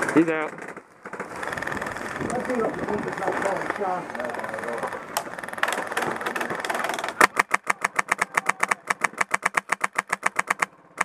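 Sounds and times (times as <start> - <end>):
airsoft rifle firing: 3.4 - 11.0.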